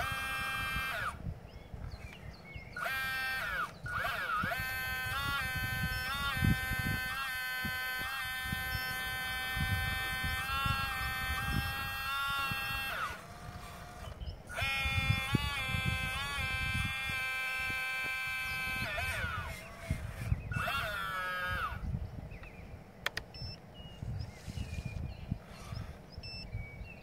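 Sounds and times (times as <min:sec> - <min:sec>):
model excavator motors whining: 0:00.0 - 0:27.0
sharp click: 0:22.4 - 0:23.6.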